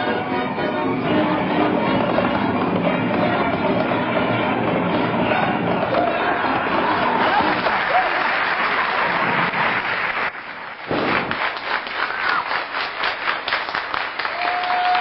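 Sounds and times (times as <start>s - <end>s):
audience applause: 5.9s - 15.0s.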